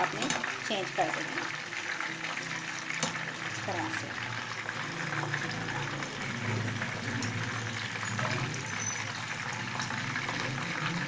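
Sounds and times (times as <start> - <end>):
oil sizzling in a pan: 0.0 - 11.0.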